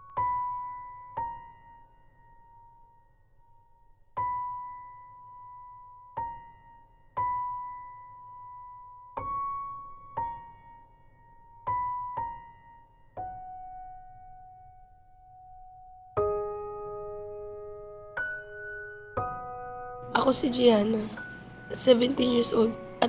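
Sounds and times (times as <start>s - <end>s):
slow high piano notes: 0.0s - 23.0s.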